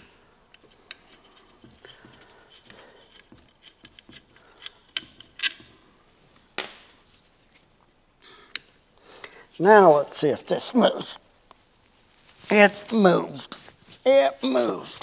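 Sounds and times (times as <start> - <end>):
hand tools clicking and rubbing: 0.0 - 5.8.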